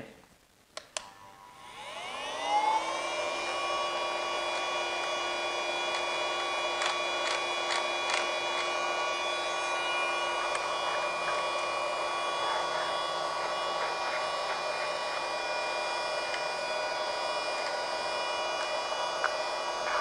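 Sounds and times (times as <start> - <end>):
small vacuum cleaner motor whine: 0.8 - 20.0.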